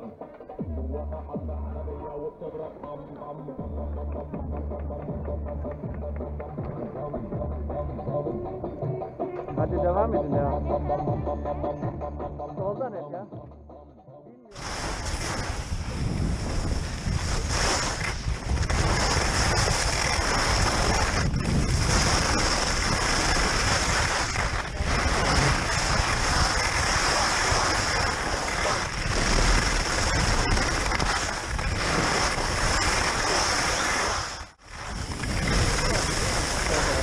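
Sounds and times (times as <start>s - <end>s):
skis sliding on snow: 14.6s - 37.0s
wind buffeting microphone: 14.8s - 32.1s.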